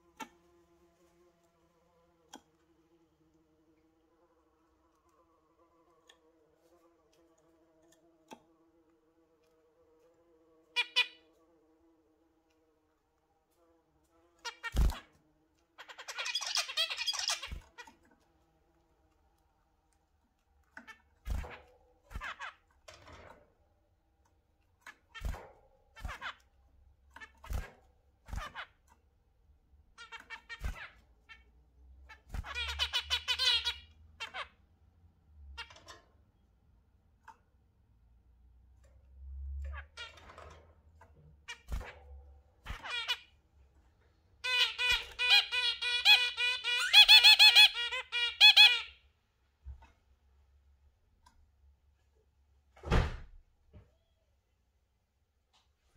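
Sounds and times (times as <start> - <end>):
zebra finch calling: 10.8 - 11.2, 15.8 - 17.9, 32.1 - 34.5, 44.4 - 48.9
low thump: 52.8 - 53.3.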